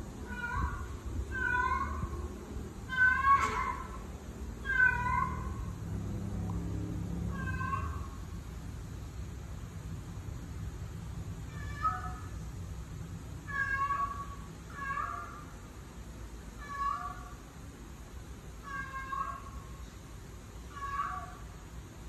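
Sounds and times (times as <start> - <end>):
cat meowing: 0.3 - 2.2, 2.9 - 4.0, 4.6 - 5.7, 7.3 - 8.2, 13.5 - 15.4, 20.7 - 21.4.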